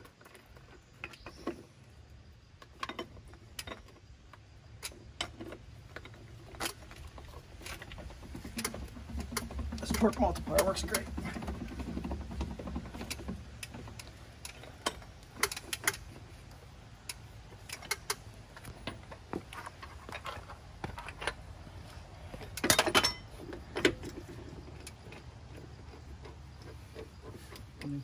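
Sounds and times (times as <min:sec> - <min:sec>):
metal clatter: 0:02.6 - 0:28.0
ratchet metallic clicks: 0:07.6 - 0:16.2, 0:17.0 - 0:20.4.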